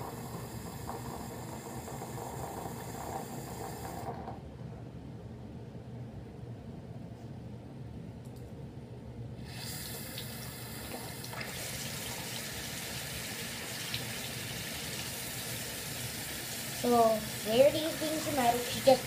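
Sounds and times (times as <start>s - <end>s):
water tap running: 0.0s - 4.2s, 9.4s - 19.0s.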